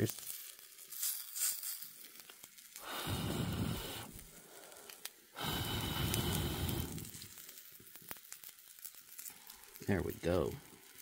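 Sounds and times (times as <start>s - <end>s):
person blowing on fire: 2.8s - 7.4s.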